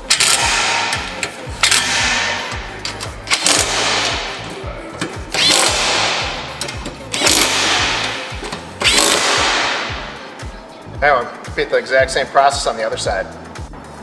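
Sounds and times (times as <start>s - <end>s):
background music with steady beat: 0.0s - 14.0s
impact driver running screws: 3.3s - 4.2s, 5.4s - 6.1s, 7.2s - 8.0s, 8.8s - 9.5s.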